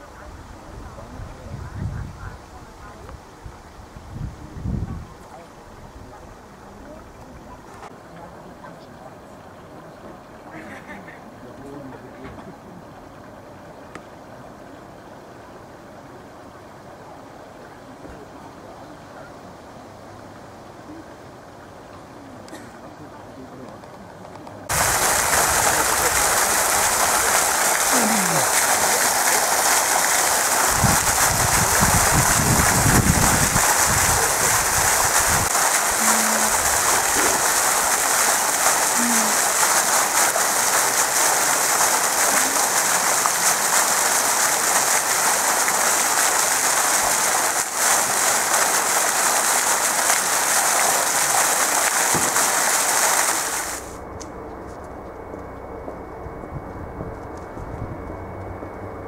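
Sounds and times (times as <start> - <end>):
fountain water splashing: 24.6 - 54.0
low rumble: 54.0 - 59.0.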